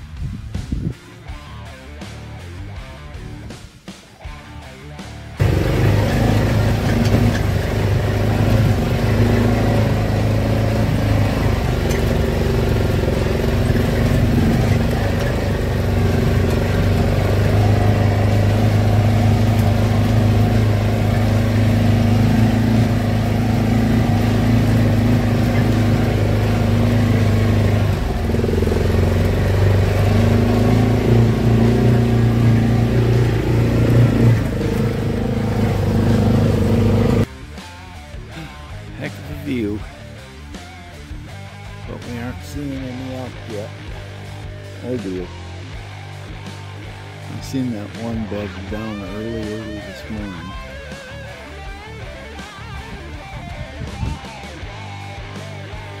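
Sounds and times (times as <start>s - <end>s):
vehicle engine droning: 5.3s - 37.4s, 38.3s - 56.0s.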